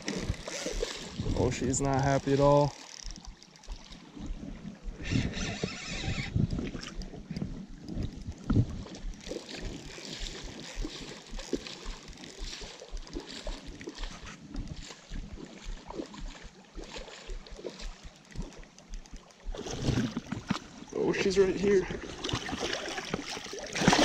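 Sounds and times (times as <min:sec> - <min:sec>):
wind on microphone: 0:00.0 - 0:02.6, 0:04.1 - 0:11.0
fishing rod and reel knocks: 0:00.0 - 0:14.8
river water over gravel: 0:00.0 - 0:24.0.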